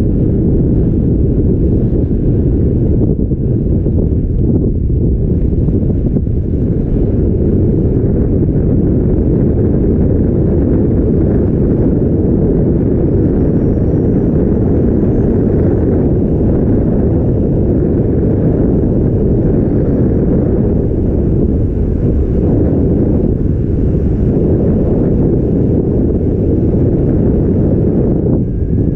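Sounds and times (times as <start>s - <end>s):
wind buffeting microphone: 0.0s - 28.9s.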